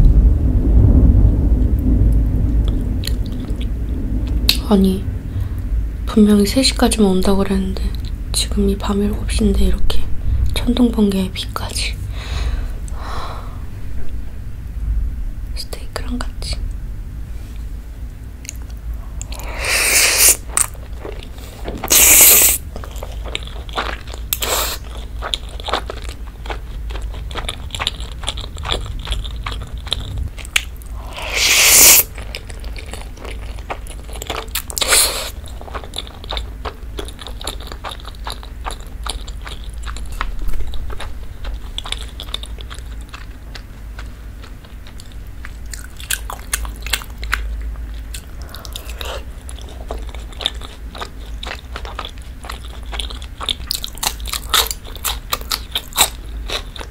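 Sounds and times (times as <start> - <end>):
wet chewing: 18.4 - 56.9
loud noodle slurps: 19.3 - 20.7, 21.9 - 22.6, 24.4 - 24.8, 31.0 - 32.1.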